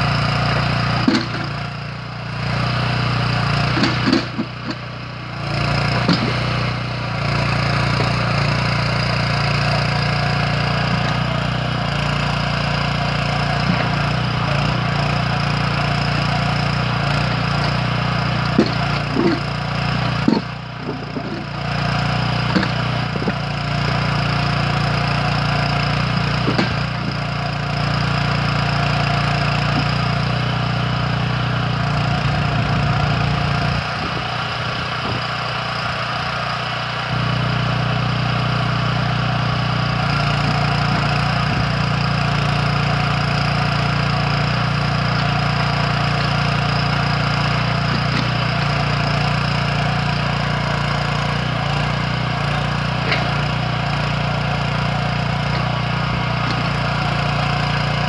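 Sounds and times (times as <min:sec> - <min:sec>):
petrol engine running: 0:00.0 - 0:58.0.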